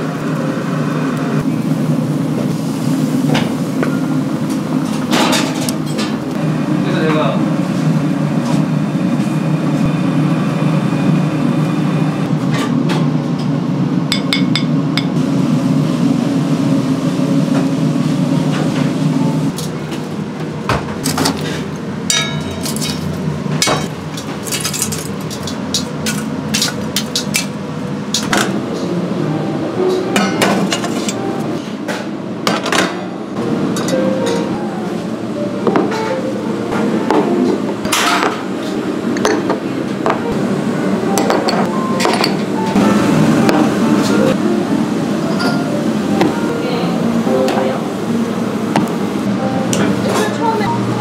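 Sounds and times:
metal tongs clinking on charcoal: 24.2s - 27.5s.

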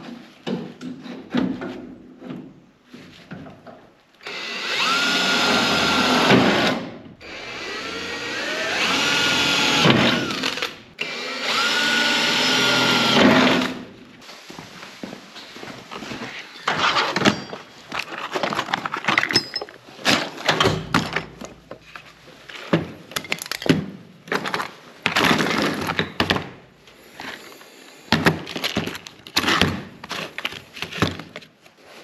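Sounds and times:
tools and metal parts clattering: 16.5s - 26.4s.

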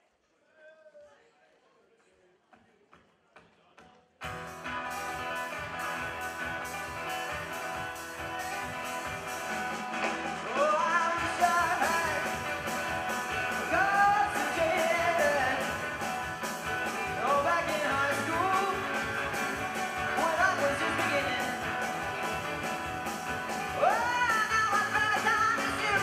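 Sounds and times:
live band playing: 4.2s - 26.0s
person singing: 10.4s - 16.2s, 16.8s - 21.9s, 23.5s - 26.0s.

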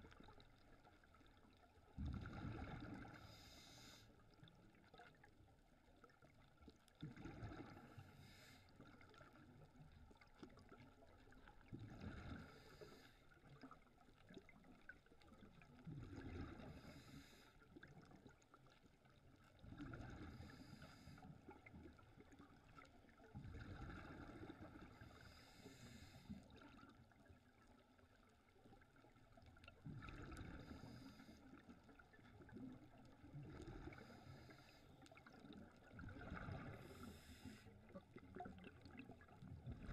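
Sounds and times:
exhaled bubbles rumbling: 0.0s - 3.3s, 4.6s - 8.2s, 9.2s - 12.6s, 13.5s - 17.0s, 19.2s - 20.7s, 21.4s - 25.4s, 26.4s - 34.5s, 35.1s - 39.9s
regulator breathing hiss: 3.2s - 4.0s.

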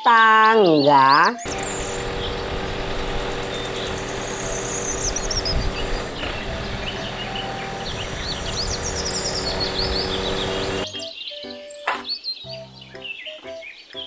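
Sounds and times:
birds chirping: 0.2s - 14.0s
truck engine humming: 1.4s - 10.8s.

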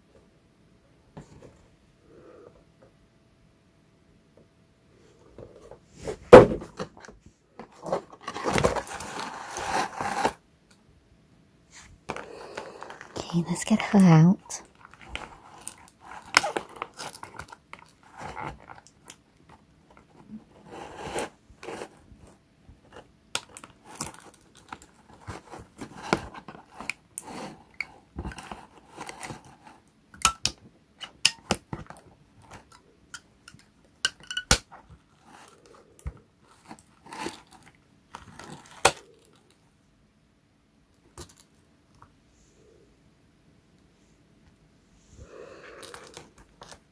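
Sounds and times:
crinkling cardboard and plastic: 6.2s - 10.4s, 12.1s - 32.8s, 33.5s - 39.6s, 45.8s - 46.9s.

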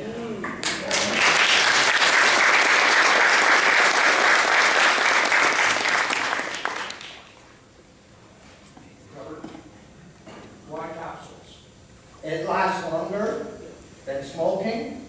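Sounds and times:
audience applauding: 0.6s - 7.4s.

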